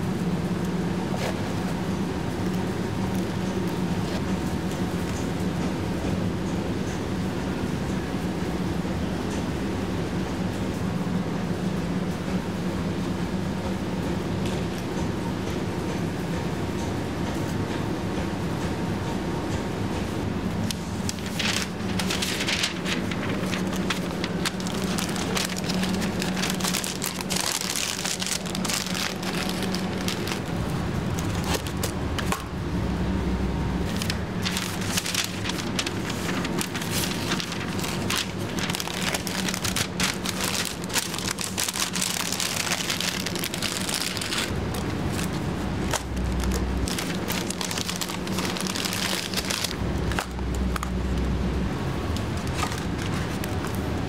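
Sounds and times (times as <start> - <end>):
steady low hum: 0.0 - 54.0
wrapping paper crinkling: 20.7 - 32.0, 33.8 - 50.7, 52.3 - 53.8.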